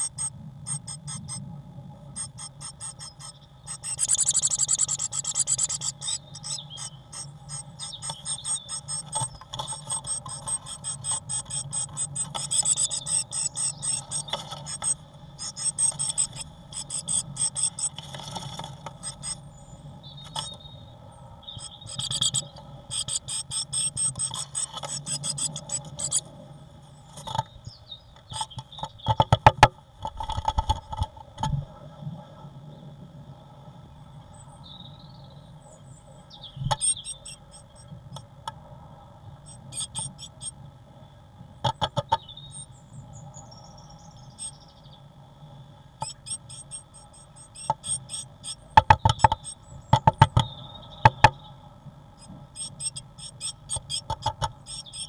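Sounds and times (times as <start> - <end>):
steady low hum: 0.0 - 55.0
bird scratching on wooden floor: 8.0 - 19.4, 23.8 - 26.2
bird scrabbling and knocking: 28.3 - 31.6, 41.6 - 42.3, 48.8 - 51.4, 54.1 - 54.6.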